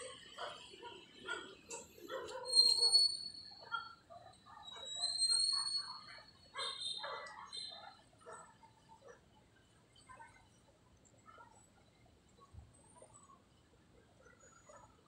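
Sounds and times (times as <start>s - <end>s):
animal yelps: 0.0s - 8.4s.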